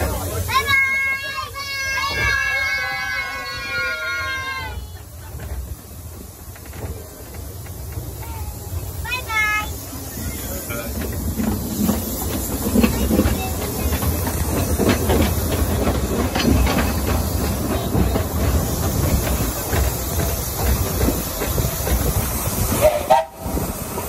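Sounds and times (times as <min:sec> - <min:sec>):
steam locomotive hissing: 0:00.0 - 0:24.0
carriage wheels clicking on track: 0:05.0 - 0:24.0.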